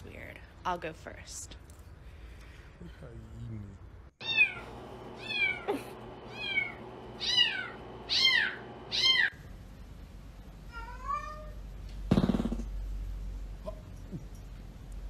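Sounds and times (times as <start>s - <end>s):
cat meowing: 4.2s - 4.6s, 6.3s - 9.3s, 10.7s - 11.6s.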